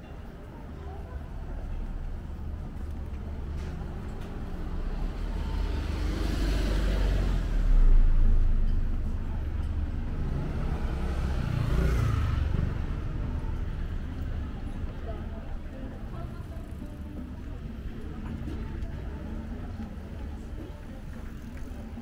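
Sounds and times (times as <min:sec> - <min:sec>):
cars passing: 0:04.5 - 0:22.0.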